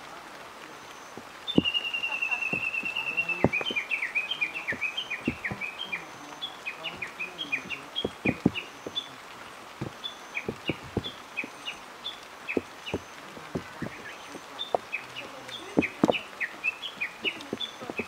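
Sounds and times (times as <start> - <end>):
birds chirping: 0.0 - 18.0
dull taps: 1.1 - 1.8, 2.4 - 6.1, 6.8 - 9.1, 9.7 - 11.7, 12.5 - 18.0.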